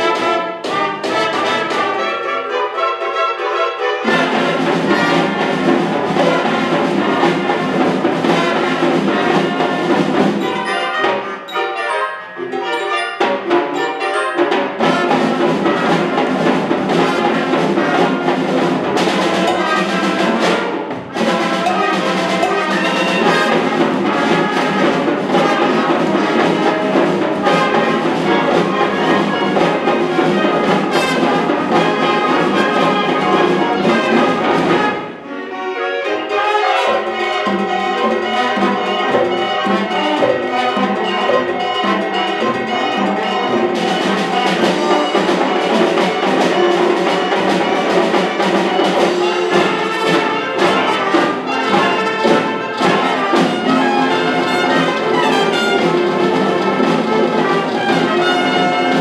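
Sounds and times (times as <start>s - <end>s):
symphonic band playing: 0.0s - 59.0s
trumpets and trombones: 0.0s - 59.0s.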